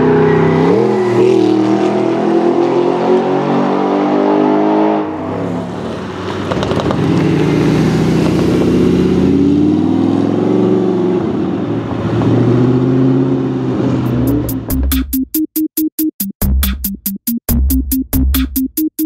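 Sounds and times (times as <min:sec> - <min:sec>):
sports car engine pulling away: 0:00.0 - 0:14.7.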